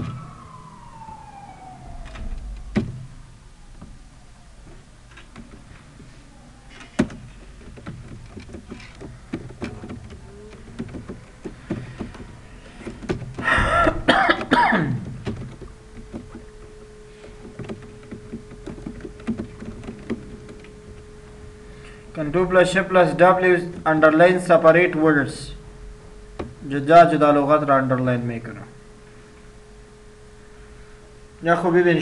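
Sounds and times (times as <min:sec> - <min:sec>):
keyboard keys clicking: 0:04.7 - 0:06.1, 0:06.7 - 0:21.4
person coughing: 0:13.4 - 0:15.0.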